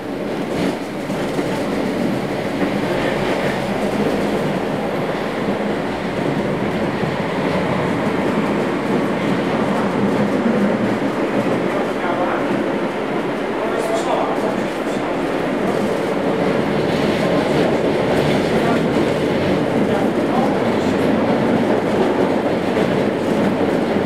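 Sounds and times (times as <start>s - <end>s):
tram wheels on rails: 0.0s - 24.0s.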